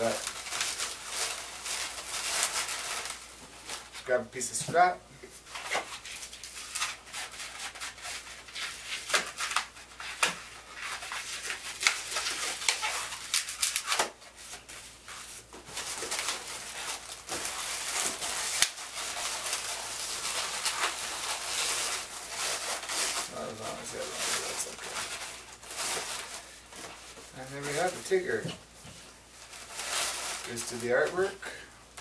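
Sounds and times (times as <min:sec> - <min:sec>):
balloons squeaking and rubbing: 0:05.5 - 0:28.8.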